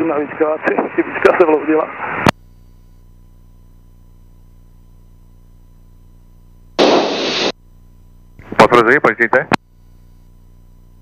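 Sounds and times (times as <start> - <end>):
radio static hiss: 0.0 - 3.0, 6.8 - 7.6, 8.4 - 10.3
low electrical hum: 0.0 - 11.0
faint steady tone: 2.3 - 8.4, 9.6 - 11.0
radio transmission click: 6.8 - 7.5, 9.4 - 9.6.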